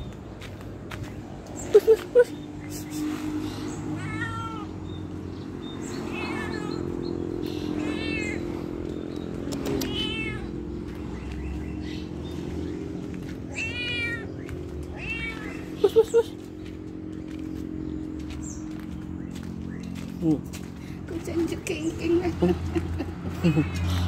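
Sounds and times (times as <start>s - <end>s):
kitten meowing: 4.0s - 4.7s, 6.1s - 6.9s, 7.7s - 8.5s, 9.7s - 10.6s, 13.5s - 15.8s.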